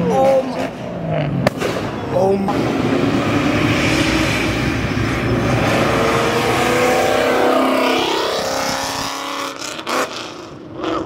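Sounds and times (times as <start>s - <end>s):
car accelerating with engine revving: 2.5s - 11.0s.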